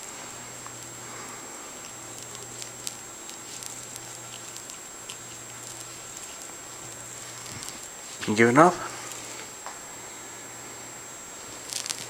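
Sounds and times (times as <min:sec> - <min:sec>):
hand rubbing cat fur: 0:01.1 - 0:09.5.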